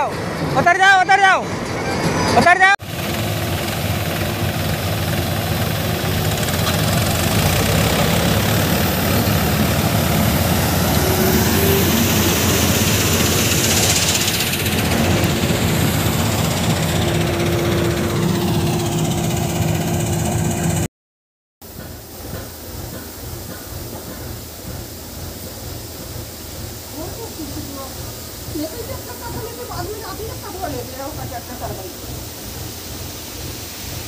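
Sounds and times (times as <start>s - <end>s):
combine harvester engine running: 0.0s - 20.9s
tractor engine running: 1.5s - 20.9s.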